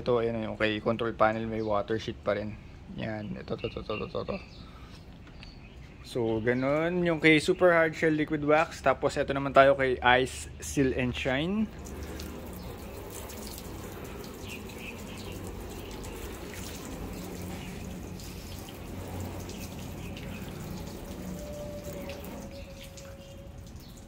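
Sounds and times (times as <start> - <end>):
hose water splashing on a car: 10.8 - 24.0.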